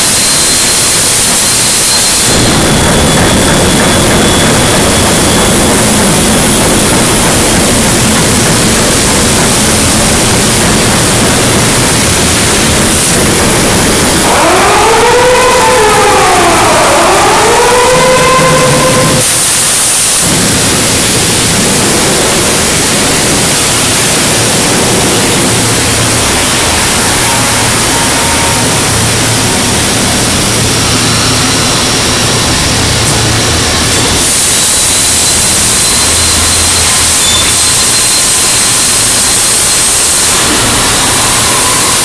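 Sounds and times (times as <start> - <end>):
industrial machinery noise: 0.0 - 42.0
faint high whistling tones: 34.0 - 42.0.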